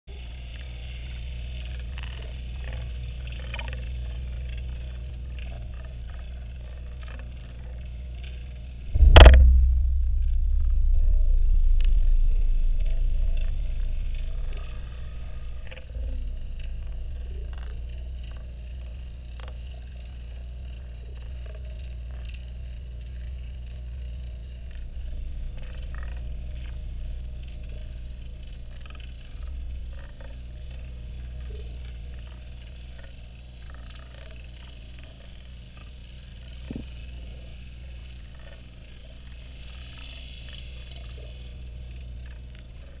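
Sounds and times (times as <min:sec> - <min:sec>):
low droning hum: 0:00.1 - 0:43.0
faint clicks and ticks: 0:00.4 - 0:43.0.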